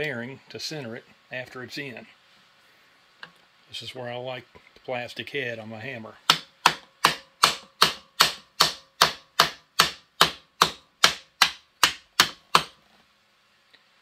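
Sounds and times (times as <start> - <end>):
hammer tapping metal part: 6.3 - 12.8.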